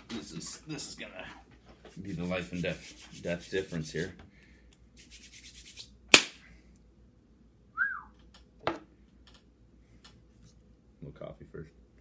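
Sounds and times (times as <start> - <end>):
hands rubbing together: 1.9 - 4.2, 5.0 - 6.0
hand clap: 6.1 - 6.4
whistled note: 7.8 - 8.2.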